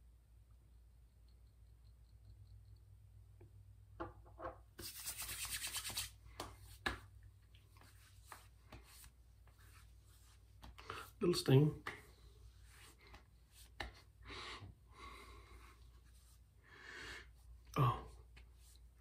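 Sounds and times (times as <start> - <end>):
hands patting face: 4.8 - 11.2, 11.8 - 14.2
palms rubbing together: 4.8 - 11.2, 11.8 - 14.1.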